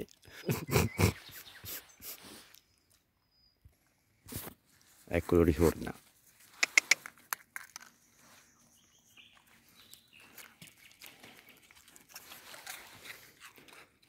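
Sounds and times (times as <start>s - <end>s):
sharp clicks: 6.6s - 7.1s.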